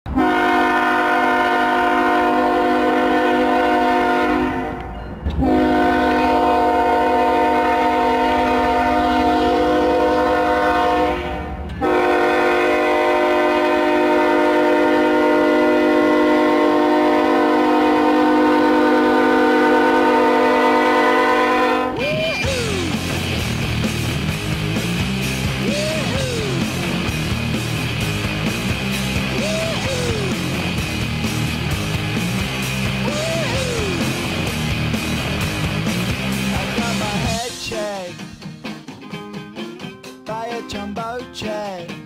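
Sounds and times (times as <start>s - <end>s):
hockey goal horn blasts: 0.1s - 22.0s.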